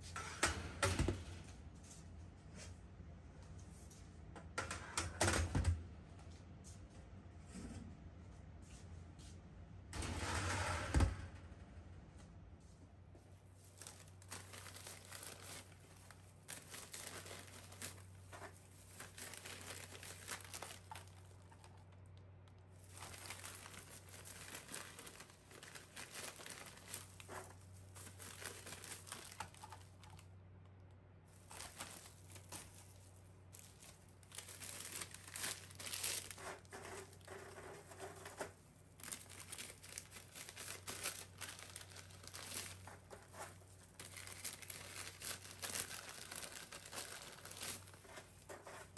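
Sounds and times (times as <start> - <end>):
low steady hum: 0.0 - 48.9
plastic bag crinkling: 13.5 - 30.3, 31.3 - 48.9.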